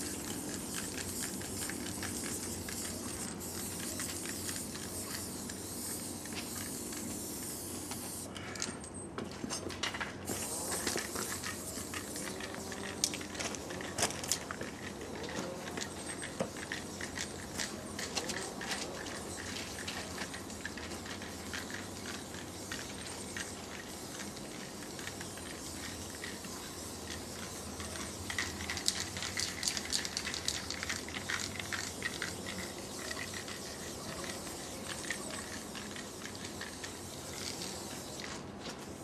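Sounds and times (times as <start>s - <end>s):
spray paint cans hissing: 0.0s - 8.3s, 9.8s - 39.0s.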